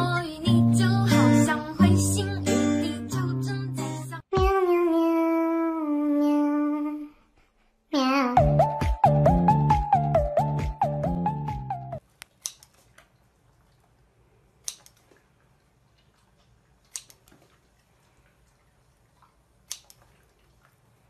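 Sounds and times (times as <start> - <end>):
pop song playing: 0.0 - 4.9, 8.4 - 12.0
scissors snipping carrot: 14.6 - 15.0, 19.7 - 20.0.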